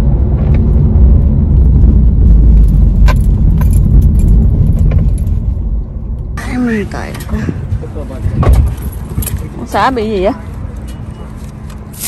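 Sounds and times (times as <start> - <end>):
road and engine rumble: 0.0 - 12.0.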